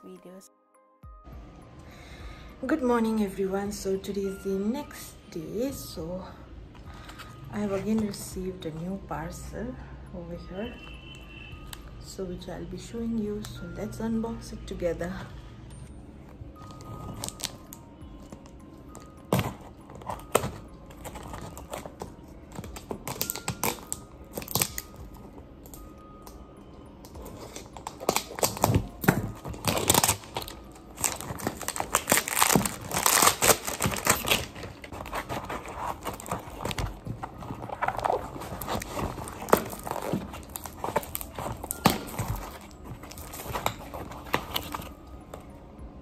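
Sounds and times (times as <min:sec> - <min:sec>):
plastic wrap crinkling and tearing: 0:16.7 - 0:18.3, 0:18.9 - 0:25.9, 0:27.0 - 0:45.0
scissors snipping plastic wrap: 0:19.0 - 0:25.0, 0:27.0 - 0:44.9.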